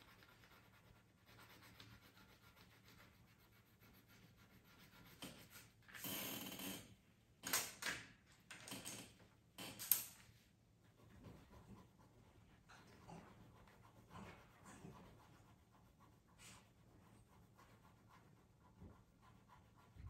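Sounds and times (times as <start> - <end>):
pencil scratching on paper: 0.0 - 5.8, 10.8 - 20.0
rubbing sound: 0.0 - 5.8, 10.3 - 20.0
pencils clicking on tabletop: 7.4 - 10.2.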